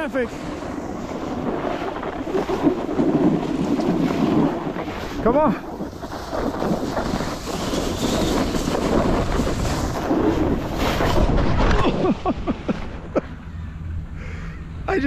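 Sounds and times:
skis scraping snow: 0:00.0 - 0:12.3
wind rushing over microphone: 0:00.0 - 0:13.2
skier crashing into snow: 0:00.7 - 0:12.3.

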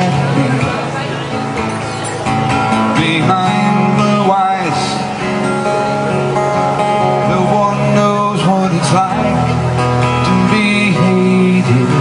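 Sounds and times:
man singing: 0:00.0 - 0:00.8, 0:02.7 - 0:05.4, 0:06.8 - 0:12.0
acoustic guitar: 0:00.0 - 0:12.0.

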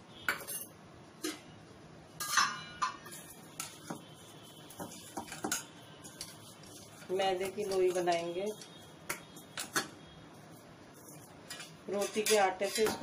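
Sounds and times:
metal dishes clinking together: 0:00.3 - 0:01.4, 0:02.2 - 0:04.0, 0:11.5 - 0:13.0.

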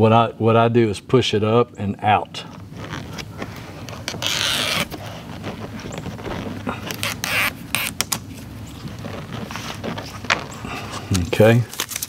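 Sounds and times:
plastic visor clicks and scrapes: 0:02.5 - 0:12.0
tape liner peeling: 0:02.5 - 0:12.0.

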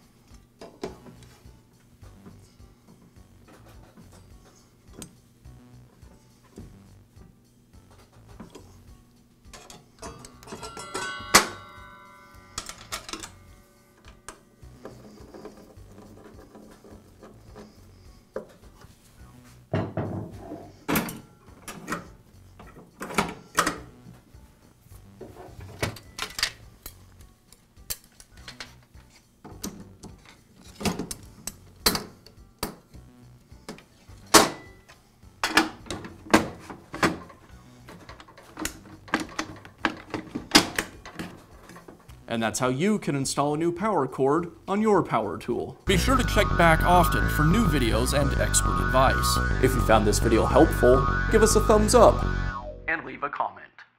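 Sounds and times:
parts clicking and clattering: 0:09.5 - 0:11.5, 0:12.6 - 0:13.4, 0:25.6 - 0:27.0, 0:35.4 - 0:42.2.

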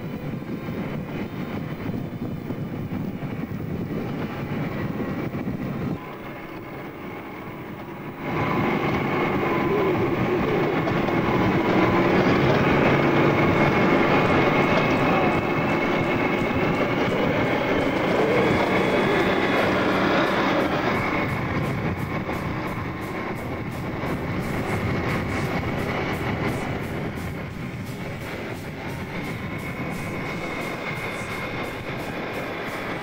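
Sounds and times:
tracked vehicle rumble: 0:00.0 - 0:33.0.

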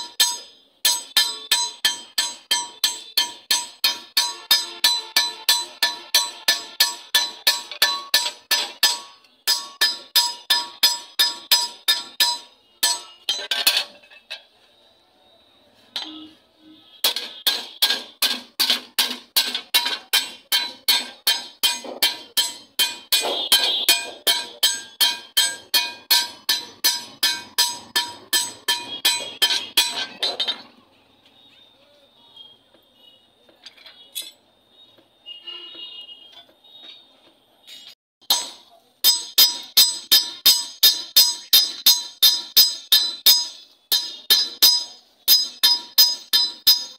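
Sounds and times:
hammer striking anvil: 0:00.0 - 0:13.9, 0:17.0 - 0:30.7, 0:37.7 - 0:46.9.

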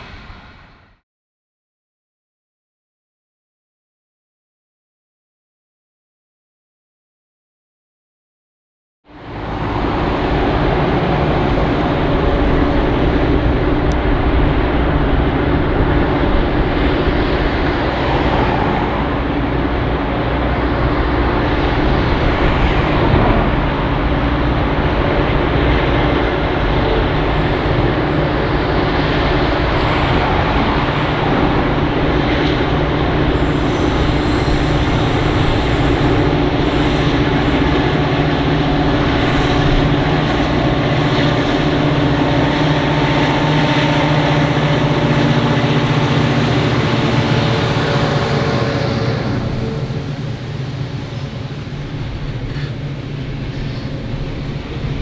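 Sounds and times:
diesel locomotive engines droning: 0:00.0 - 0:01.0, 0:09.1 - 0:55.0.

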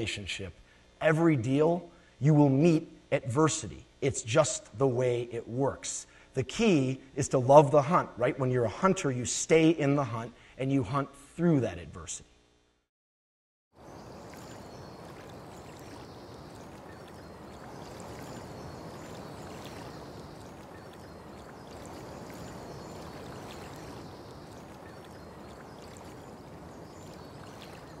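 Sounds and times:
faint high chirps: 0:13.8 - 0:28.0
rushing outdoor ambience: 0:13.8 - 0:28.0.

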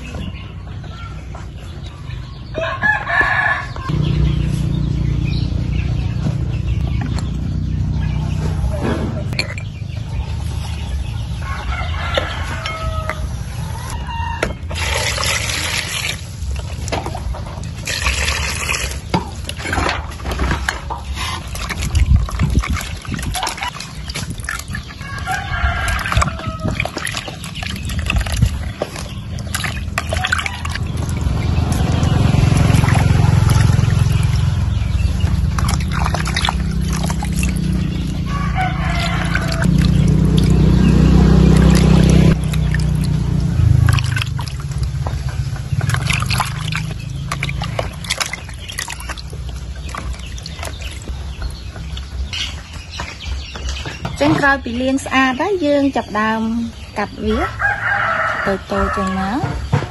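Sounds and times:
rooster crowing: 0:02.5 - 0:03.9, 0:11.4 - 0:14.4, 0:38.2 - 0:39.8, 0:57.5 - 0:59.4
hands sloshing mushrooms in liquid: 0:14.7 - 0:51.1
low rumble: 0:24.0 - 0:52.4.

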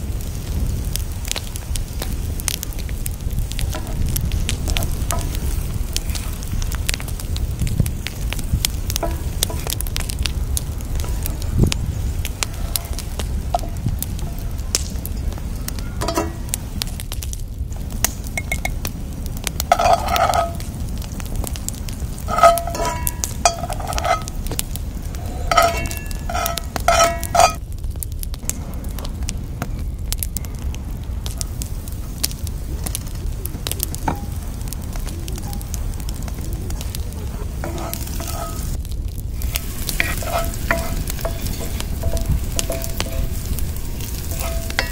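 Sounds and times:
onions sizzling in hot oil: 0:00.0 - 0:44.9
metal tongs clinking on pan: 0:04.7 - 0:05.5, 0:09.0 - 0:09.8, 0:16.0 - 0:16.5, 0:19.7 - 0:20.6, 0:22.3 - 0:24.4, 0:25.4 - 0:27.6, 0:37.6 - 0:38.8, 0:39.4 - 0:44.9.

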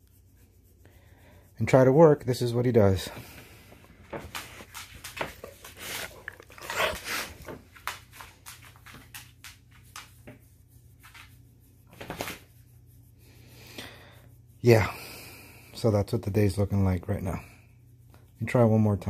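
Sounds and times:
hand scratching dog's coat: 0:00.0 - 0:13.4.

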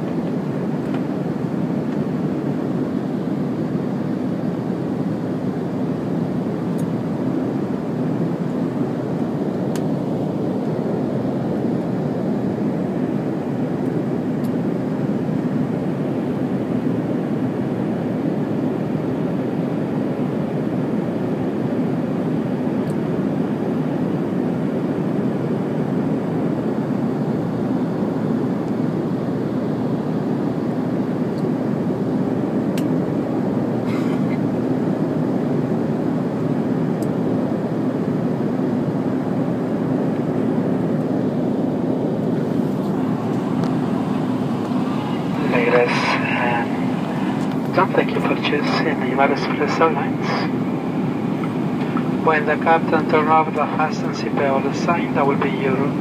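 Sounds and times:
jet engines roaring: 0:28.0 - 0:56.0
low hum: 0:40.1 - 0:56.0
rushing air: 0:42.2 - 0:52.3.

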